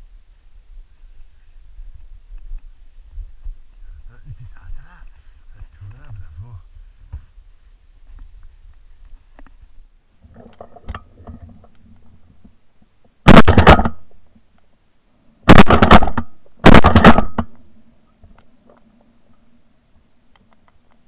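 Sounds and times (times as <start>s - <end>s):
shotgun shots: 13.3s - 14.1s, 15.5s - 17.6s.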